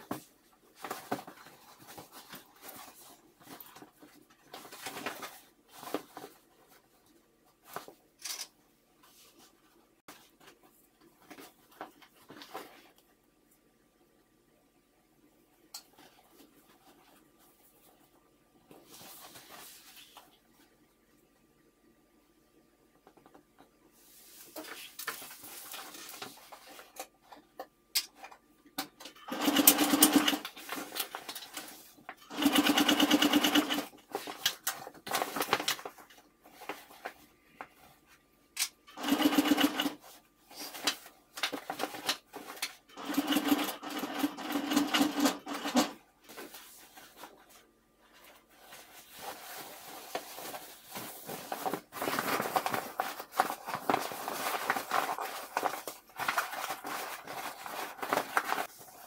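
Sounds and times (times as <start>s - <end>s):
sewing machine stitching: 29.2s - 30.5s, 32.2s - 33.9s, 38.9s - 40.0s, 42.9s - 46.0s
fabric rustling: 46.2s - 59.0s.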